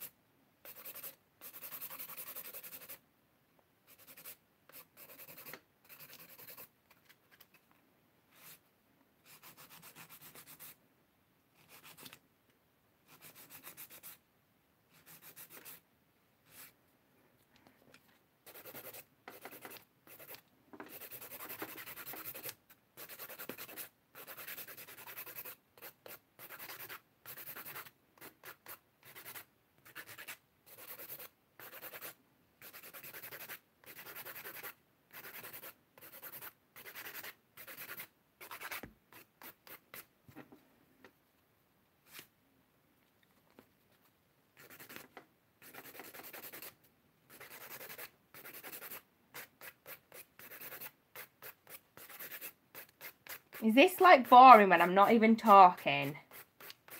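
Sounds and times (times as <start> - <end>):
nail file rasping on nails: 0.7 - 3.0, 3.9 - 6.7, 9.3 - 10.8, 11.6 - 12.2, 13.1 - 14.2, 15.0 - 15.8, 18.5 - 40.1, 44.6 - 53.7, 56.1 - 56.9.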